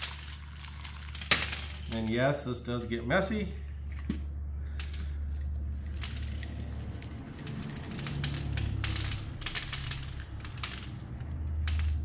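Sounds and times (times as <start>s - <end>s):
rock salt crackling into glass jar: 0.0s - 2.3s, 4.7s - 12.0s.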